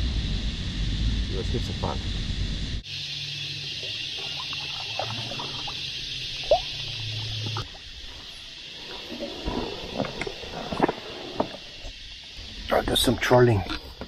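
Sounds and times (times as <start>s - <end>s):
steady hiss: 0.0s - 14.0s
water lapping: 3.5s - 12.0s
water dripping off paddle: 3.8s - 7.9s.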